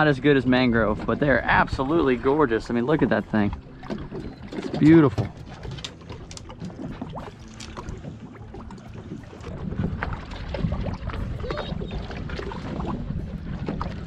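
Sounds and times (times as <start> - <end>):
water against boat hull: 0.0 - 14.0
wind on microphone: 6.7 - 14.0.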